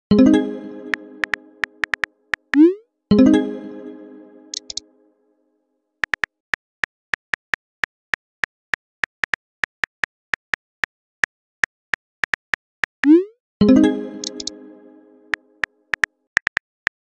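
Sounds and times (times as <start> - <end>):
keyboard tap clicks: 1.2 - 2.6, 4.5 - 4.8, 6.0 - 6.3, 14.2 - 14.5.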